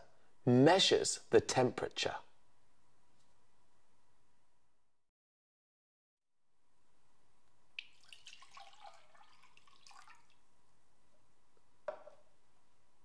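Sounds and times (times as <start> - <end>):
water pouring into glass jug: 7.8 - 10.5.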